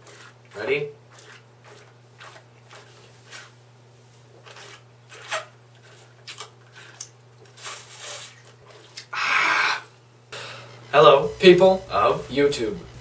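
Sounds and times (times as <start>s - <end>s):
sucking and slurping through straws: 0.0s - 3.6s, 4.3s - 9.8s.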